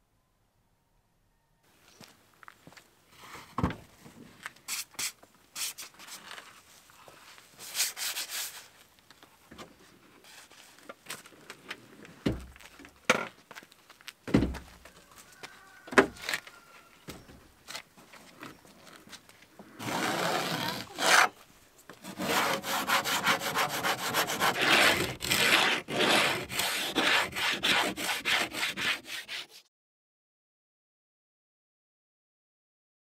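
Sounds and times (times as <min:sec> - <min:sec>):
scraping rustle: 0:09.8 - 0:12.8.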